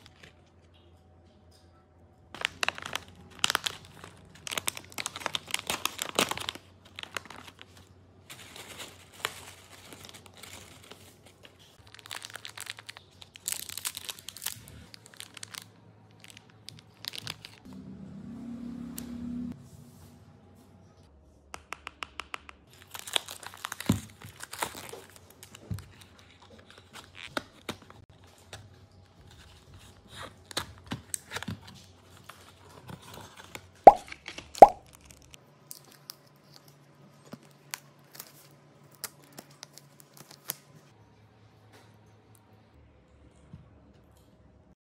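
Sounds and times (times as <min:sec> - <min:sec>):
packaging crinkling and tearing: 0:02.4 - 0:17.7, 0:22.7 - 0:28.0, 0:29.3 - 0:40.7.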